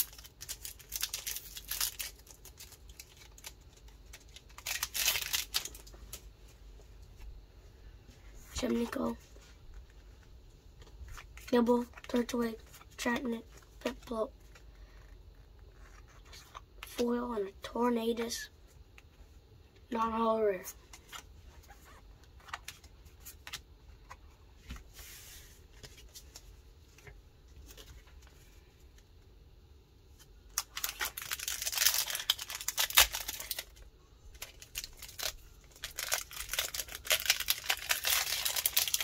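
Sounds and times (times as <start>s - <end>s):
foil wrapper crinkling and tearing: 0.0s - 5.9s, 30.5s - 39.0s.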